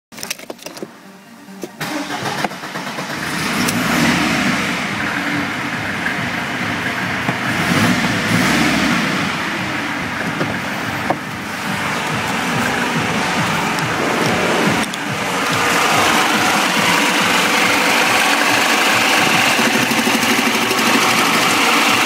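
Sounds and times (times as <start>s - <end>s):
diesel engine running: 1.8s - 22.0s.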